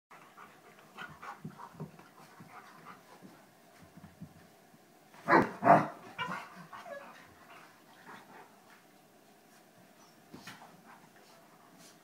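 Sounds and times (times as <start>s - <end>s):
dogs panting: 0.1s - 4.0s, 6.1s - 8.7s
dogs scuffling: 0.2s - 12.0s.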